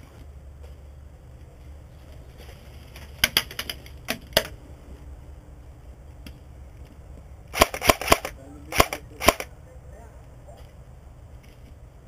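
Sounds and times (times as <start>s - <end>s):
airsoft gunfire cracks: 7.5s - 9.5s.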